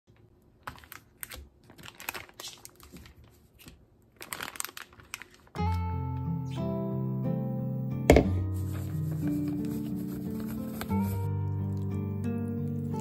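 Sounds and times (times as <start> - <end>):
plastic packages crinkling: 0.5 - 5.8
acoustic guitar music: 5.6 - 13.0.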